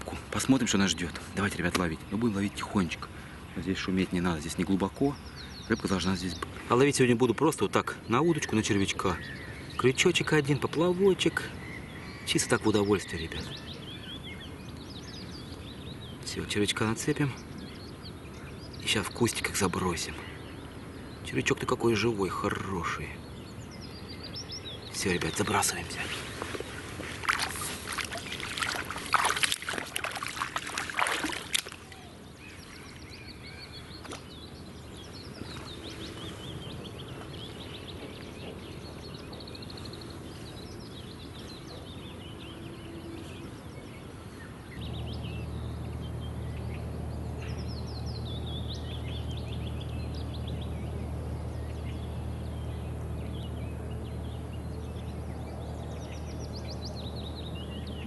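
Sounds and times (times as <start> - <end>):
birds chirping: 0.0 - 58.0
waders splashing through water: 26.0 - 33.0.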